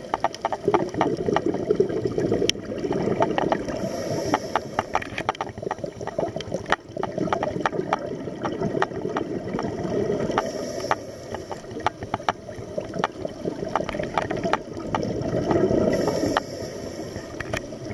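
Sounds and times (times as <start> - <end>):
crackle of sharp clicks: 0.0 - 1.6, 2.4 - 9.7, 10.3 - 16.5
exhaled bubbles gurgling: 0.0 - 17.9
regulator inhalation hiss: 3.8 - 5.0, 10.4 - 11.8, 15.9 - 17.6.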